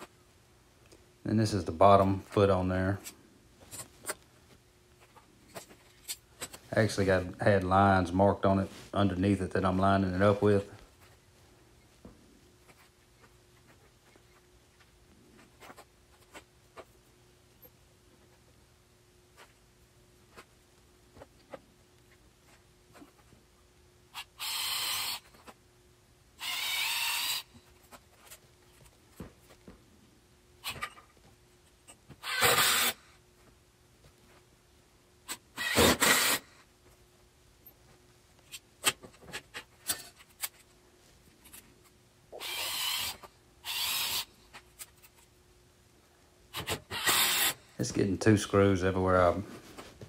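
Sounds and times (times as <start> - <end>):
cordless drill driving screws: 24.4 - 25.2, 26.4 - 27.5, 32.2 - 33.0, 35.6 - 36.5, 42.4 - 44.3, 46.5 - 47.6.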